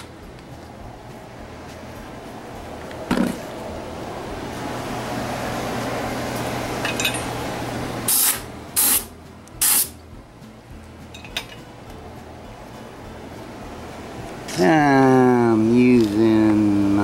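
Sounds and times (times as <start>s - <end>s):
steady rushing noise with hum: 0.0s - 17.0s
compressed air blasts: 8.0s - 10.0s.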